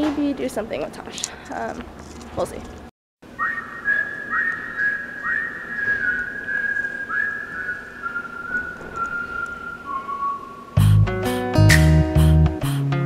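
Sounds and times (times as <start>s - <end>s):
person whistling a slow tune: 3.4s - 11.0s.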